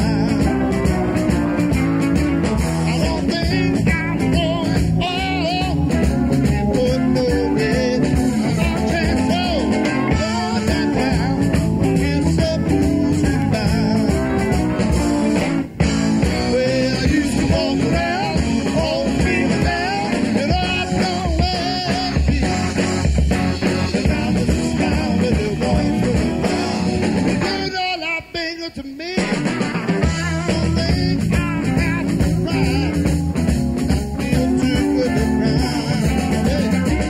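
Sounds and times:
person singing: 0.0 - 1.7, 2.7 - 15.4, 16.1 - 33.3, 33.9 - 37.0
blues-rock band playing: 0.0 - 37.0.

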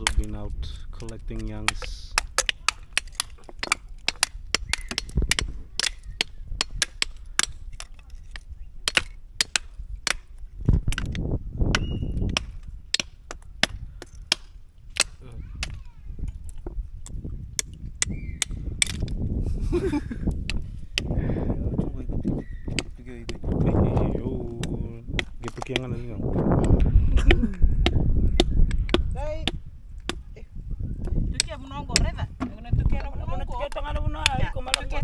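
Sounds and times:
stone and knife cracking shells: 0.0 - 0.3, 1.0 - 19.2, 20.2 - 21.2, 22.2 - 23.6, 24.5 - 26.0.

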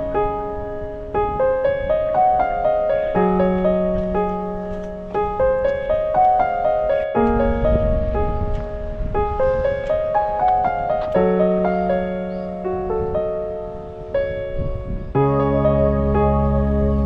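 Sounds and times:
gentle piano melody: 0.0 - 17.0
held low bass notes: 14.6 - 17.0.

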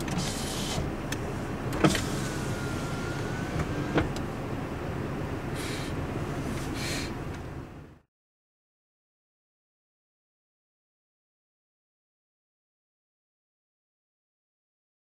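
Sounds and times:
car engine idling: 0.0 - 8.0.

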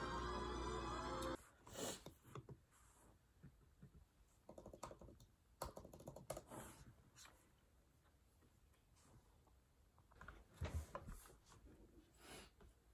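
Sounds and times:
laptop keyboard typing: 4.5 - 6.5.

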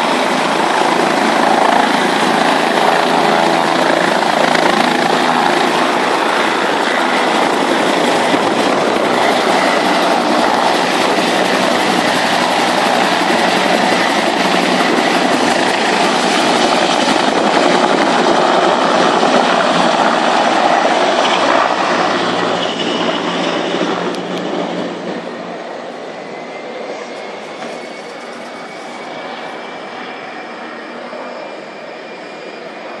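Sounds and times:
helicopter engine and rotor noise: 0.0 - 33.0.

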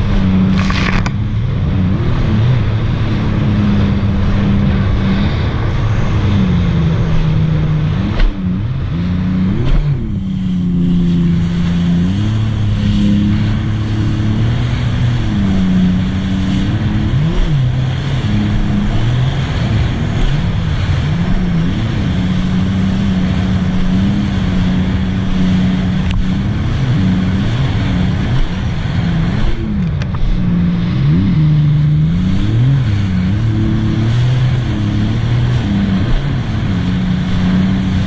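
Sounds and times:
jet ski engine: 0.0 - 38.0
wind and water rushing: 0.0 - 38.0.

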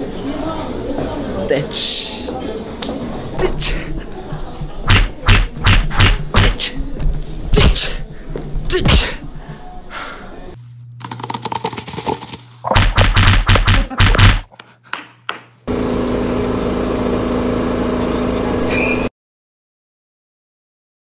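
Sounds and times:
hand thumping camera microphone: 4.8 - 6.6, 12.6 - 15.5.

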